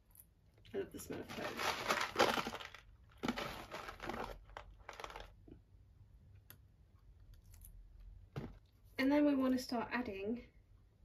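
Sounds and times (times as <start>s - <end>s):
packet crinkling: 1.1s - 5.5s.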